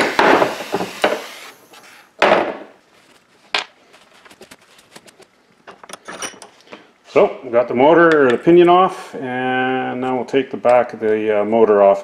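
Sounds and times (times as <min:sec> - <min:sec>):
metal tools clinking: 0:05.8 - 0:06.5.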